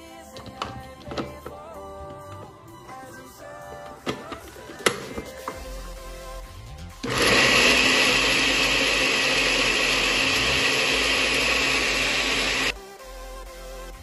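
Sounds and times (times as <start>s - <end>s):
food processor motor running: 7.0s - 12.8s.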